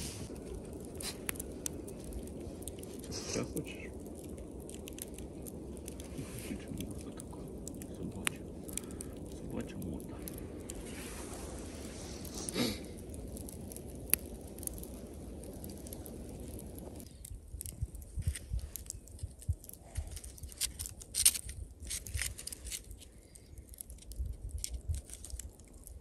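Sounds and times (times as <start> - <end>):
campfire crackling: 0.0 - 26.0
low rushing noise: 1.4 - 17.0.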